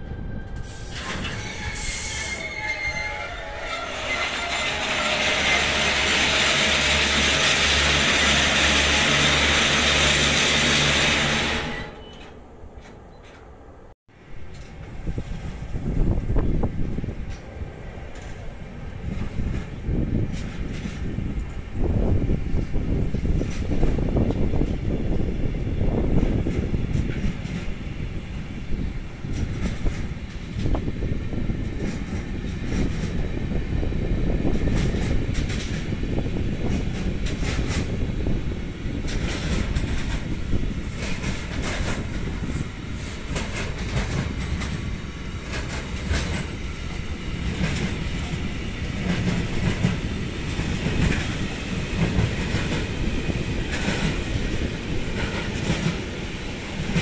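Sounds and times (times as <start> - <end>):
freight train wagons rumbling: 0.0 - 57.0
wheels clicking over rail joints: 39.0 - 57.0.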